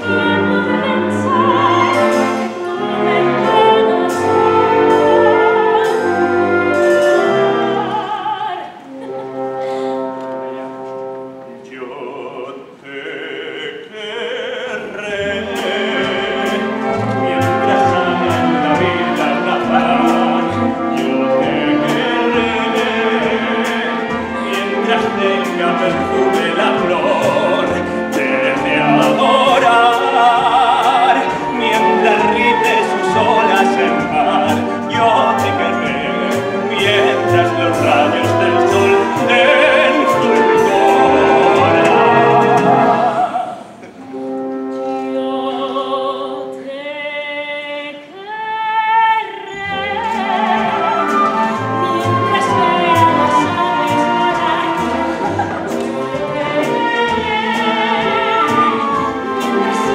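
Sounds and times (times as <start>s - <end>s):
orchestral accompaniment: 0.0s - 59.9s
man singing operatically: 11.6s - 43.3s, 49.6s - 55.4s.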